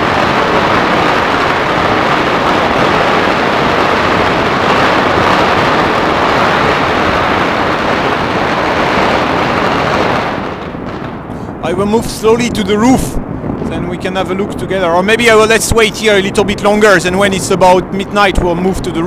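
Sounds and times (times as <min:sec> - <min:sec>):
massed firecrackers crackling: 0:00.0 - 0:19.0.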